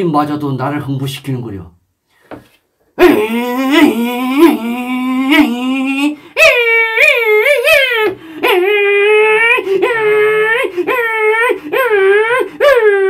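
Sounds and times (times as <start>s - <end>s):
man imitating race car engine: 3.0s - 13.0s.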